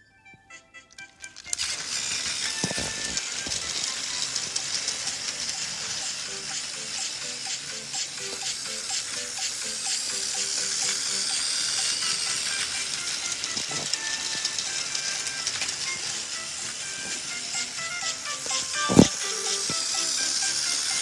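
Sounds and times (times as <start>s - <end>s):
quiet melodic music: 0.0s - 6.0s
toy train whirring rattle: 0.5s - 21.0s.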